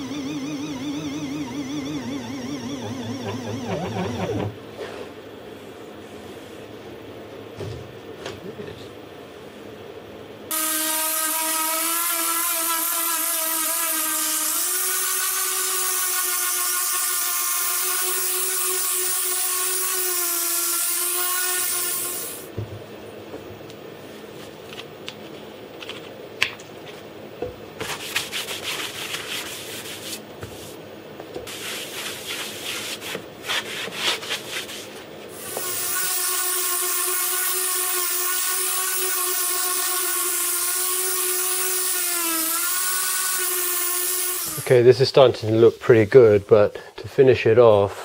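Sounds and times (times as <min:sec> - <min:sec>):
cnc router spindle whine: 0:00.0 - 0:04.7.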